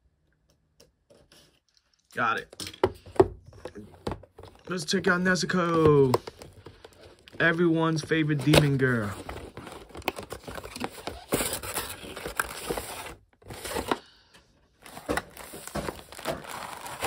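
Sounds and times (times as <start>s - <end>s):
cardboard rustling and scraping: 3.1s - 14.0s, 14.8s - 17.0s.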